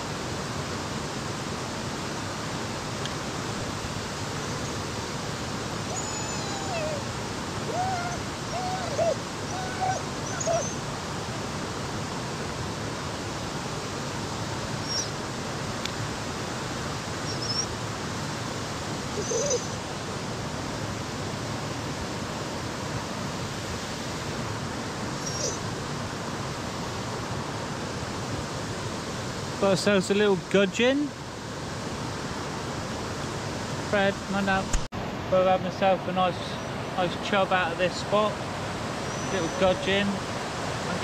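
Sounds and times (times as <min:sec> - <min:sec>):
flowing river water: 0:00.0 - 0:41.0
whistling calls: 0:05.9 - 0:07.0, 0:17.3 - 0:17.7, 0:19.2 - 0:19.8, 0:25.2 - 0:25.6, 0:39.0 - 0:39.8.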